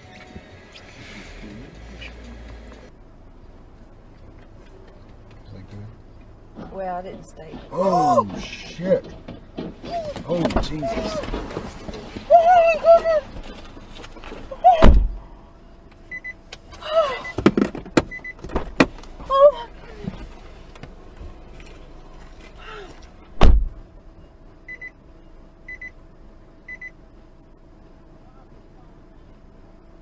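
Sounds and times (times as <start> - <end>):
person exclaiming: 7.7 - 8.4
faint steady hum: 10.0 - 30.0
car door thump: 14.7 - 15.2, 17.3 - 19.0, 23.4 - 23.8
electronic warning chime beeping: 25.7 - 25.9.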